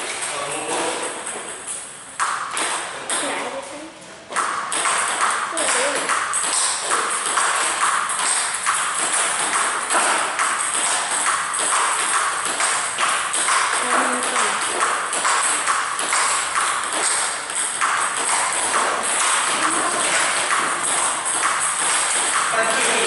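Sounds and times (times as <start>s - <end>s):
table tennis ball clicks: 0.9s - 3.4s, 4.3s - 23.0s.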